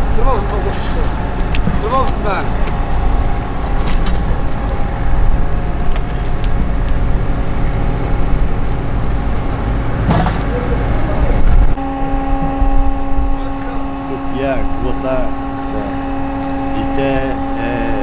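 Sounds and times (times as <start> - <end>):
hand trolley rolling over asphalt: 0.0 - 11.7
steady mechanical hum: 0.0 - 18.0.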